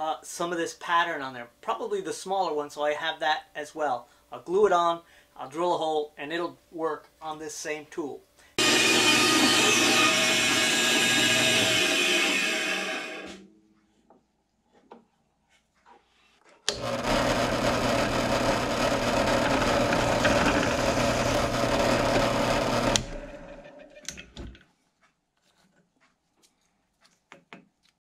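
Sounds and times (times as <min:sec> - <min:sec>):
drill press boring wood: 0:08.6 - 0:13.4, 0:16.7 - 0:23.7.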